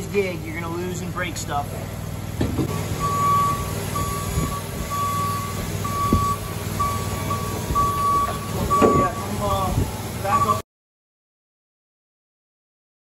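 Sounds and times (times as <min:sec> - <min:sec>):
low engine running: 0:00.0 - 0:10.6
forklift warning alarm beeping: 0:02.7 - 0:09.7, 0:10.3 - 0:10.6.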